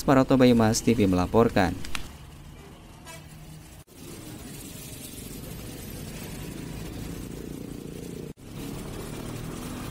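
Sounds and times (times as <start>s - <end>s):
motorcycle engines: 0.0s - 9.9s
truck engine: 2.0s - 9.9s
bus engine: 2.1s - 9.9s.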